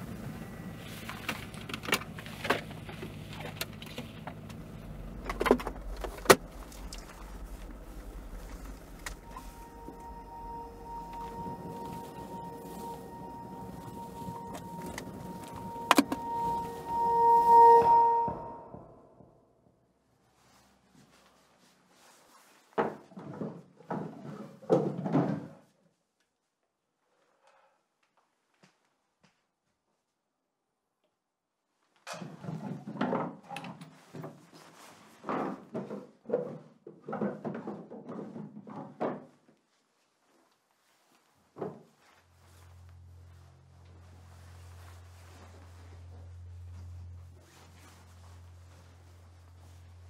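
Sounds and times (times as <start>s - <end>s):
car interior rumble: 0.0s - 19.2s, 42.2s - 50.0s
hand rummaging with clicks and rattles: 0.8s - 9.6s.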